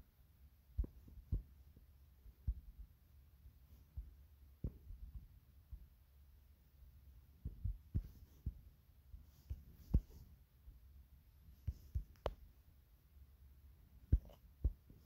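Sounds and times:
faint low hum: 0:00.0 - 0:15.0
taps on a touchscreen: 0:14.1 - 0:14.9.

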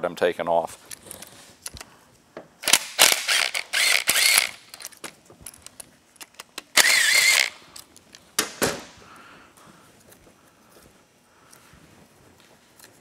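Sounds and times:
power ratchet motor whine: 0:02.6 - 0:04.8, 0:06.8 - 0:07.6.

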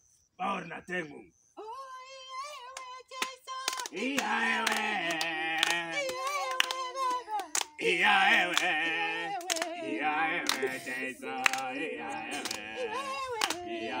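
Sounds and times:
hand claps: 0:02.7 - 0:14.0
group singing: 0:03.1 - 0:14.0.

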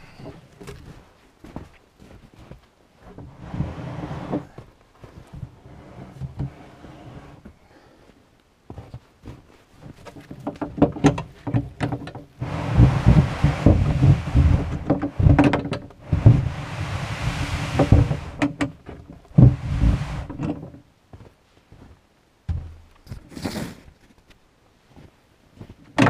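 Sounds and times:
wooden slab dragged over snow: 0:03.0 - 0:07.4, 0:12.4 - 0:20.7, 0:23.0 - 0:24.1
crunches and scrapes in snow: 0:12.4 - 0:15.4, 0:23.0 - 0:24.1.

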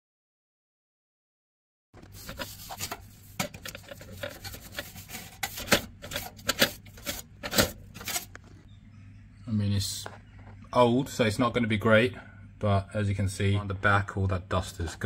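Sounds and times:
brush scraping inside boiler: 0:02.0 - 0:08.6
low steady hum: 0:02.0 - 0:15.0.

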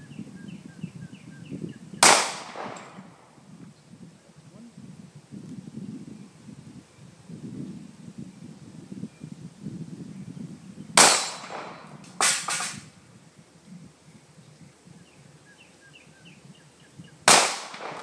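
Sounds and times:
pistol shots: 0:02.0 - 0:03.2, 0:11.0 - 0:12.8, 0:17.3 - 0:18.0.

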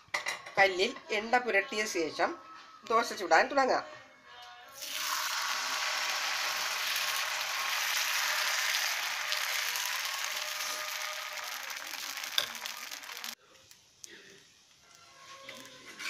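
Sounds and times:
batter sizzling on a griddle: 0:04.8 - 0:16.0.

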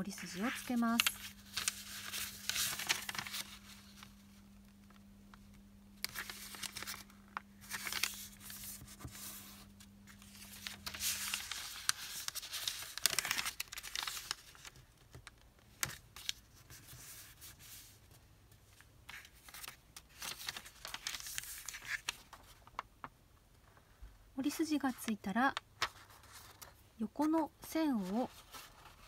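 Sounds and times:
paper rustling and crinkling: 0:00.0 - 0:05.0, 0:06.0 - 0:23.1, 0:25.6 - 0:29.0
fingers rubbing paper folds: 0:10.4 - 0:14.7.

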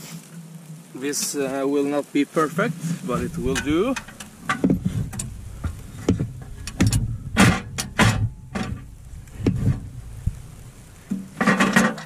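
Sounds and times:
gear handling knocks and scrapes: 0:02.8 - 0:12.0.

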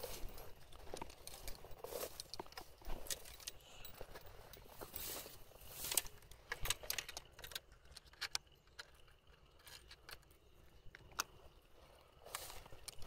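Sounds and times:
rustling through tall grass: 0:00.0 - 0:06.8, 0:11.8 - 0:13.0.

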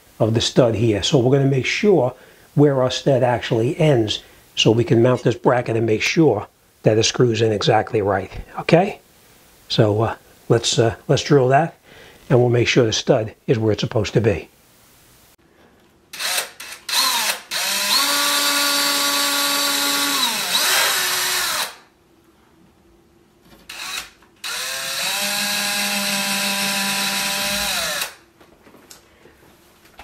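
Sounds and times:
cordless drill motor whine: 0:16.2 - 0:21.8, 0:23.7 - 0:28.2.

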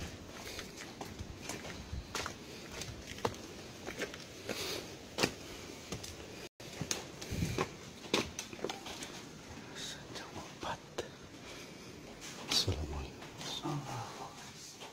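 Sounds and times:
footsteps on stone and tile: 0:00.0 - 0:09.8.

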